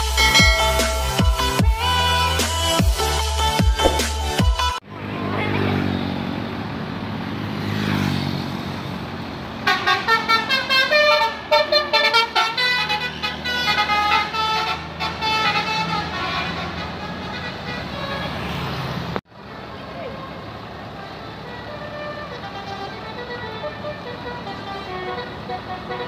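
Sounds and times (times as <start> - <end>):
multi-tone musical bus horn: 0.0 - 4.0, 9.6 - 18.6, 20.0 - 26.0
bus diesel engine running: 0.0 - 4.8, 19.0 - 26.0.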